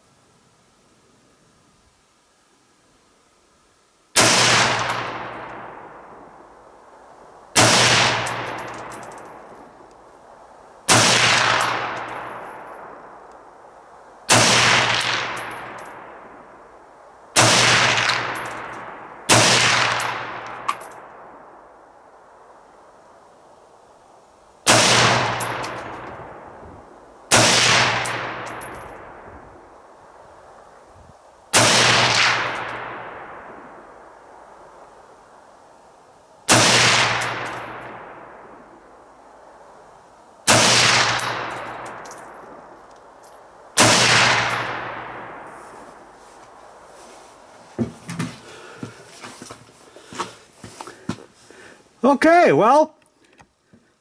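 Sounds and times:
rifle shots echoing: 4.2 - 6.4, 7.6 - 9.6, 10.9 - 13.2, 14.3 - 16.5, 17.4 - 21.4, 24.7 - 26.5, 27.3 - 29.3, 31.6 - 33.8, 36.5 - 38.7, 40.5 - 42.7, 43.8 - 45.5.

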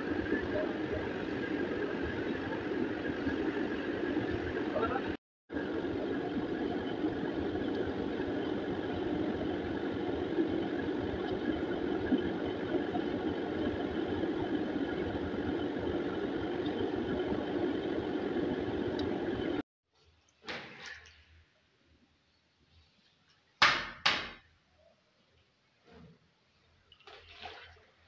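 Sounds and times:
steady mechanical hum: 0.0 - 19.6.

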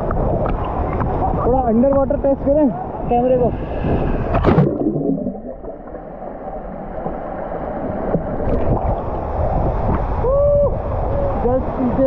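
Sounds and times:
low rumble of churning water: 0.0 - 12.0
water rushing: 0.0 - 12.0.

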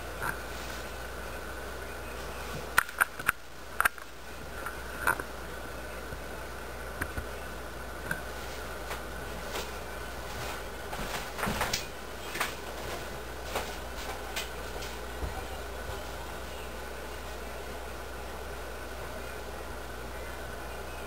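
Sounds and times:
birds pecking and scratching litter: 8.1 - 17.6.

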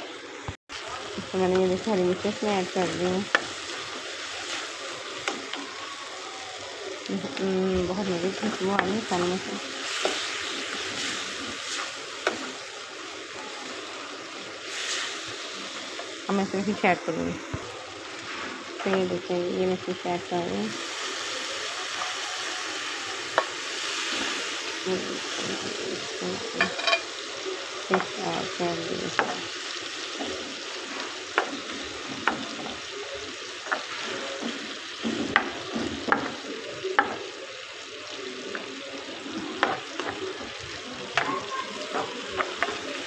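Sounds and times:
food sizzling in a pan: 0.0 - 43.0.

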